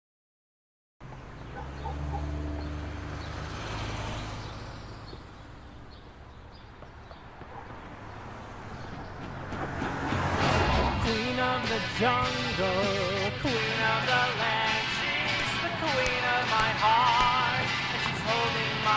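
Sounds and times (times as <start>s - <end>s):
cars passing: 1.0s - 18.9s.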